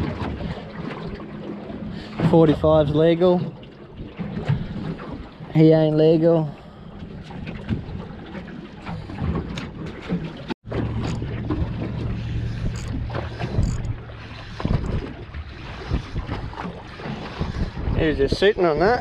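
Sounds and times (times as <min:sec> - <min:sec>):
water sloshing against hull: 0:00.0 - 0:19.0
wind buffeting microphone: 0:10.6 - 0:19.0
steady low hum: 0:10.7 - 0:17.5.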